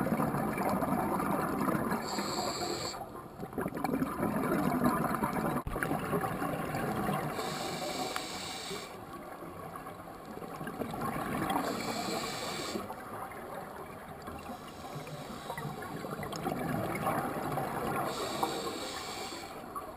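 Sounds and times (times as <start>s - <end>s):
gurgling exhaled bubbles: 0.0s - 8.1s, 9.7s - 19.2s
hissing regulator inhales: 2.0s - 3.0s, 7.4s - 9.0s, 11.6s - 12.9s, 14.5s - 16.0s, 18.0s - 19.7s.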